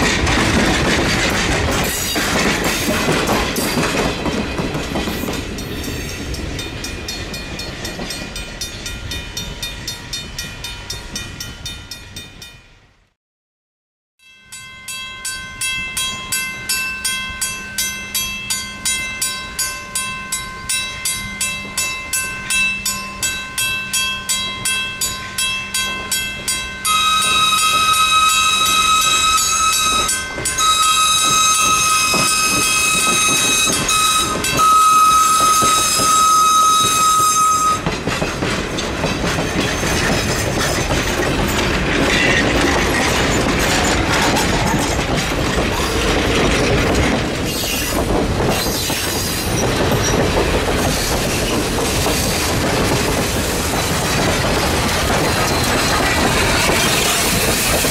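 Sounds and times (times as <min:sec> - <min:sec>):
passing train rail clatter: 0:00.0 - 0:12.7, 0:14.6 - 0:57.9
crossing bell ringing: 0:00.0 - 0:13.1, 0:14.2 - 0:47.4
steam whistle long blasts: 0:26.8 - 0:37.9.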